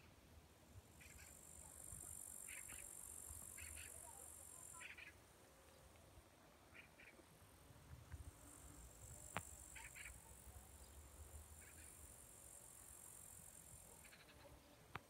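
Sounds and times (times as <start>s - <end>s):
insect hiss: 0.7s - 5.2s, 8.0s - 14.5s
faint chirps: 1.0s - 6.0s, 8.6s - 12.2s, 13.3s - 15.0s.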